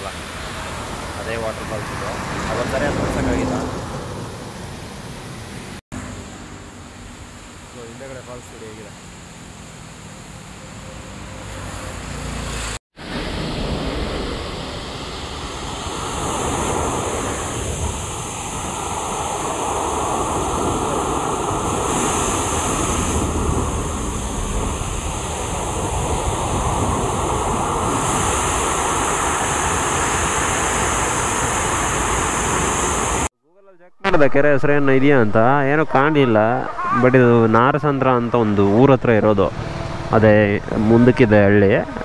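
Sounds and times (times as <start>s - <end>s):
water rushing over weir: 12.4s - 33.3s.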